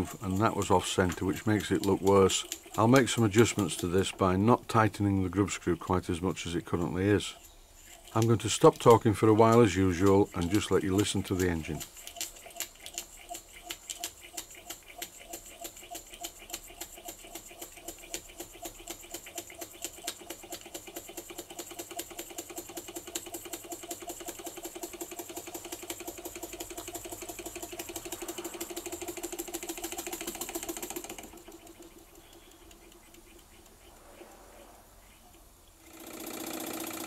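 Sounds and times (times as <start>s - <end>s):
toy steam engine beating: 0.0s - 34.0s, 35.8s - 37.0s
steam hissing: 27.4s - 31.4s.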